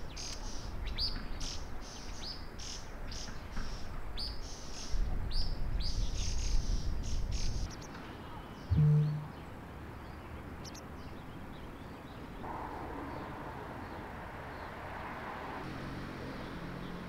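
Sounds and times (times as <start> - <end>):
small birds chirping: 0.0 - 12.4.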